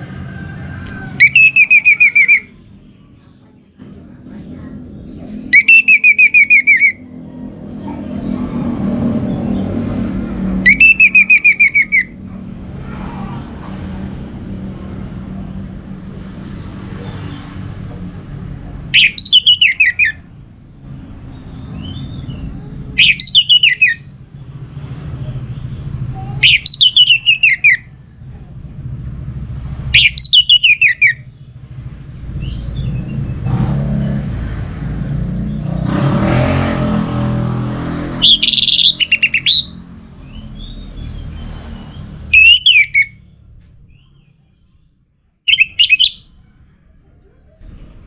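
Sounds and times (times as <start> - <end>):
bird singing trills: 1.2 - 3.6, 4.6 - 8.3, 10.6 - 12.4, 18.3 - 24.1, 26.2 - 27.9, 29.9 - 31.6, 38.2 - 46.8.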